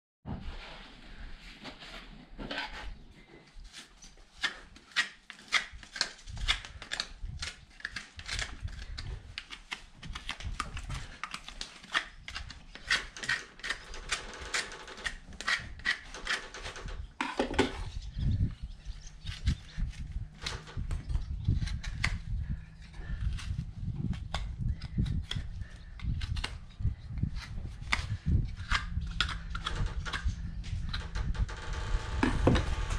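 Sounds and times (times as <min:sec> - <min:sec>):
hoof knife scraping hoof: 0:10.9 - 0:16.6.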